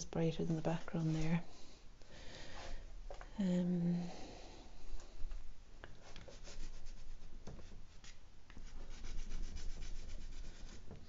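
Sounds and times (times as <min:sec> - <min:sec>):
chalk pastel strokes on canvas: 0:06.0 - 0:11.0.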